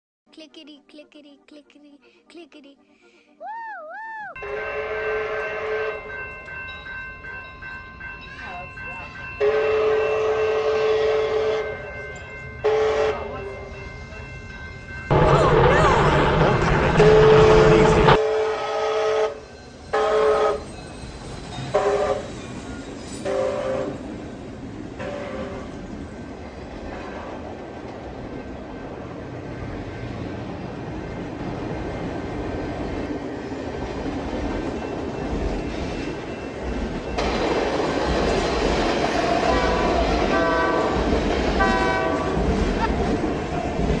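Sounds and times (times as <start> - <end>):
steam train whistle: 4.4 - 6.2, 9.4 - 11.8, 12.6 - 13.3, 17.0 - 20.7, 21.5 - 24.1, 25.0 - 25.8, 39.2 - 41.0, 41.6 - 42.4
train rumble: 4.4 - 44.0.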